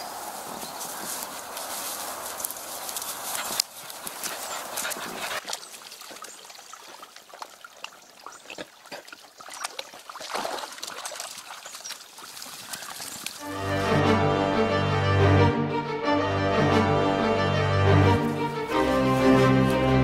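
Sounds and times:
rustles and footfalls on grass: 0.0 - 6.2, 18.2 - 20.0.

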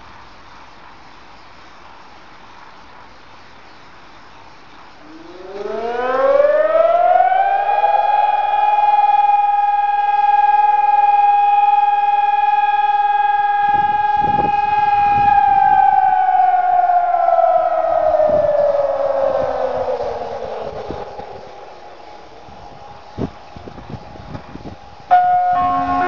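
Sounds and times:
electronic siren tone: 5.0 - 21.7, 25.1 - 26.0.

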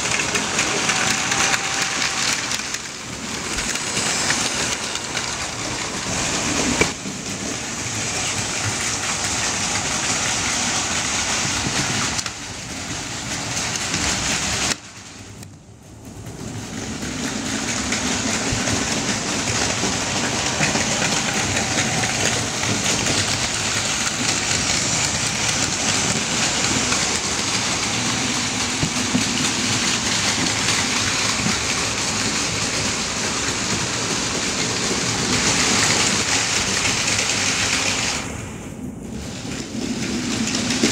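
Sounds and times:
toy trains running on plastic track: 0.0 - 40.9.

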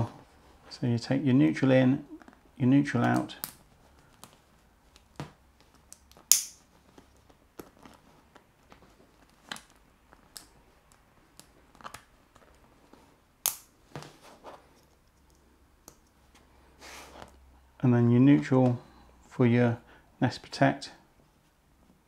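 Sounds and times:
wire handling: 2.1 - 16.5.

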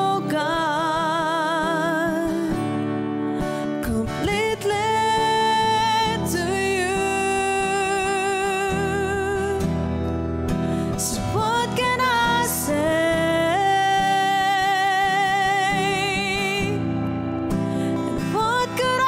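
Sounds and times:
woman singing: 0.0 - 9.9, 10.8 - 19.0
strummed acoustic guitar: 0.0 - 19.0.

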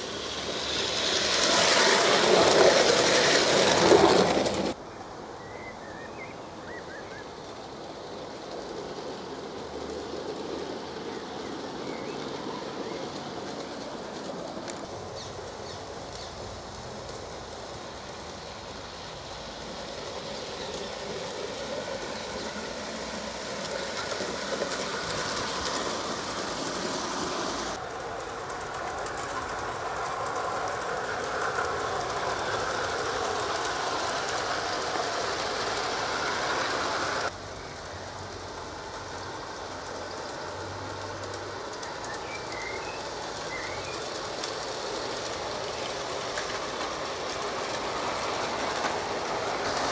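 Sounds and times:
model train wheels clicking: 0.0 - 4.8, 6.0 - 49.9.

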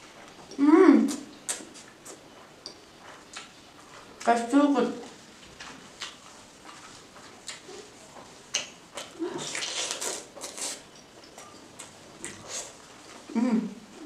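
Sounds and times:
wet chewing and lip smacks: 1.1 - 4.1, 5.6 - 12.8.

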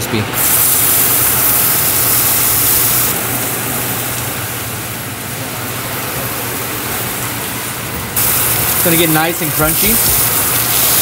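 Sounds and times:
fish sizzling on hot plate: 0.4 - 3.2, 8.2 - 11.0.

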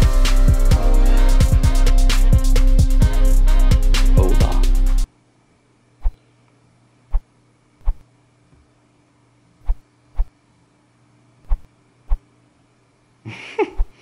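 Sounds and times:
faint steady hum: 5.0 - 14.0.

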